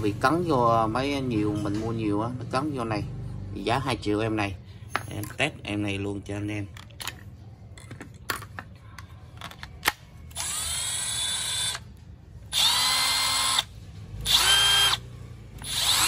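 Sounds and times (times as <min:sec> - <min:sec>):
impact driver whining: 0:12.5 - 0:15.0, 0:15.6 - 0:16.0.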